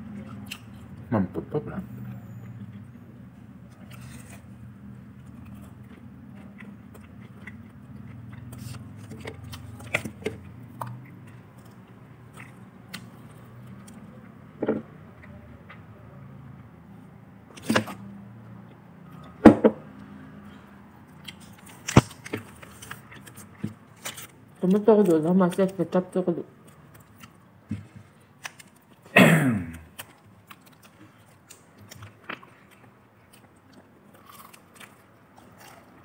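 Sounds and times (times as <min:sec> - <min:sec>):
low room hum: 0:00.0 - 0:36.0.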